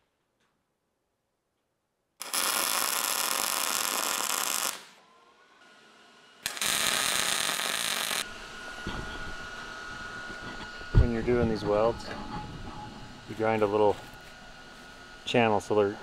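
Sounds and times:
electric arc welding crackling: 2.2 - 5.0, 6.4 - 8.8.

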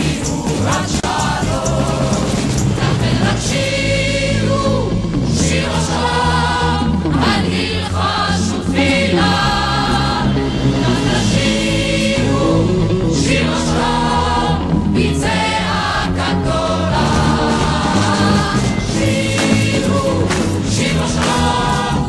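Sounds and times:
choir singing: 0.0 - 22.0
instrumental accompaniment: 8.6 - 22.0.

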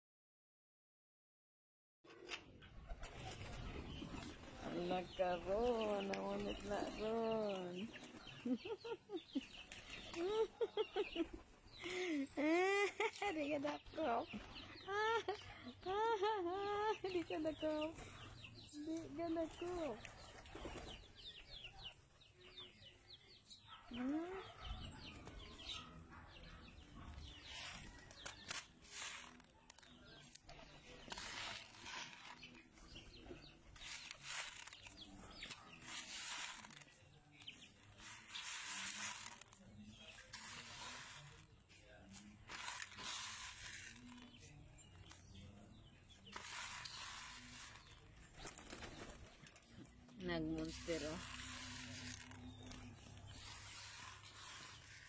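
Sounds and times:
chickens clucking and peeping: 2.1 - 55.0
pigeon wing flaps and rustling: 48.3 - 49.4.

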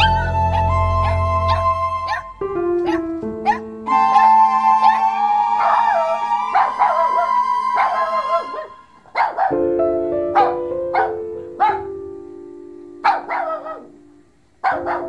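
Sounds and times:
puppies crying: 0.0 - 9.6
background music of held notes: 0.0 - 15.0.

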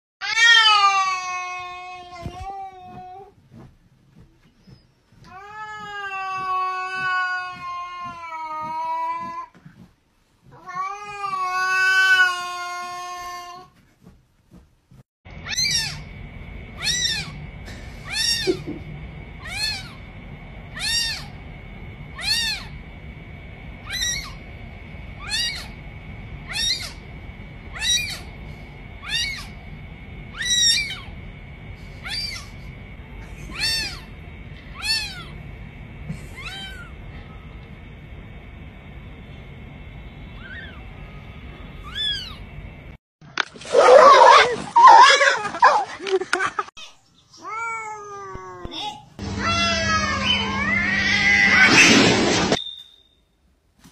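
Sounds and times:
faint high whine: 15.3 - 43.0, 49.2 - 53.6
cat meowing: 15.4 - 16.0, 16.8 - 17.4, 19.4 - 20.0, 20.8 - 21.3, 22.2 - 22.7, 25.2 - 25.7, 26.5 - 27.0, 27.7 - 28.3, 29.0 - 29.5, 33.5 - 34.1, 34.7 - 35.3, 49.3 - 51.8.

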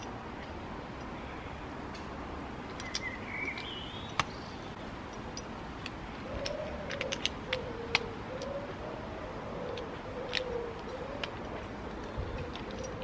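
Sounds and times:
outdoor background noise: 0.0 - 13.0
bird chirping: 2.8 - 4.9.

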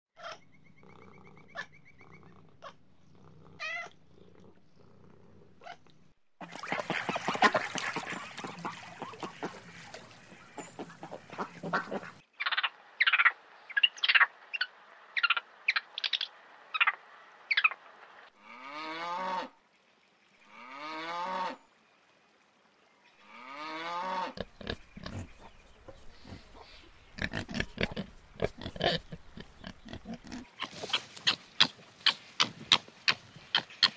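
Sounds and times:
noisy crackly animal call: 0.2 - 5.9, 6.8 - 17.8.

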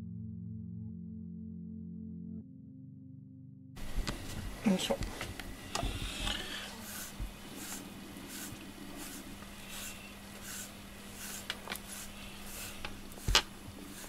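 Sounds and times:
brush rasping through cat fur: 3.8 - 14.0.

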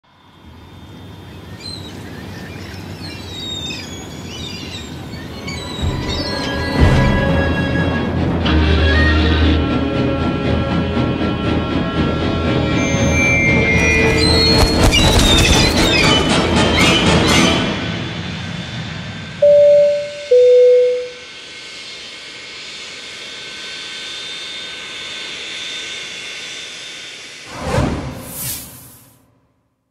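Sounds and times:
jet engine noise with whine: 0.0 - 8.4, 10.7 - 29.1
birds chirping: 0.6 - 7.9
deep rumble: 5.7 - 8.5
wind rushing: 12.8 - 16.6, 27.5 - 29.2
two-note chime: 19.4 - 21.2
short whoosh: 27.5 - 29.2.

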